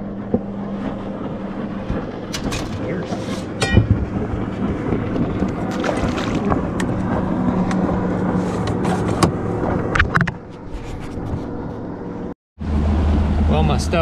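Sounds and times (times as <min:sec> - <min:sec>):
outboard motor droning: 0:00.0 - 0:14.0
wind and water noise: 0:00.0 - 0:14.0
sharp knocks: 0:03.6 - 0:04.2.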